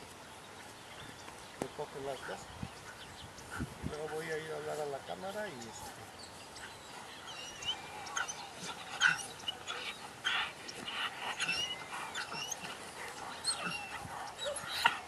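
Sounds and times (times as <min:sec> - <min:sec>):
dog panting: 0:06.6 - 0:15.0
dog whining: 0:07.3 - 0:12.8, 0:13.4 - 0:15.0.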